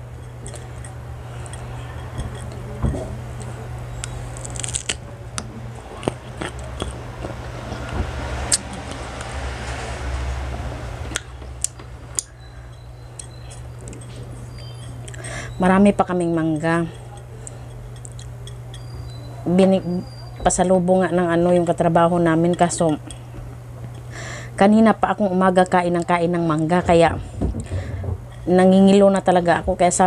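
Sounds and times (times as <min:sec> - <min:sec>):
chewing crisp fruit: 0:03.3 - 0:09.3
crunchy bite clicks: 0:03.4 - 0:09.3
wet mouth sounds: 0:05.9 - 0:09.1.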